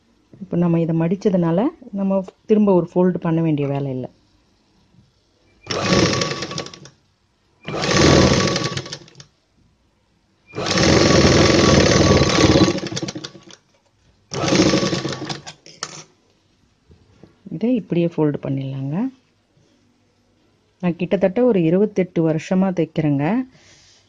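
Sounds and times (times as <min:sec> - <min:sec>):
sewing machine stitching: 0:05.6 - 0:06.9, 0:07.6 - 0:09.2, 0:10.6 - 0:13.6, 0:14.3 - 0:15.6.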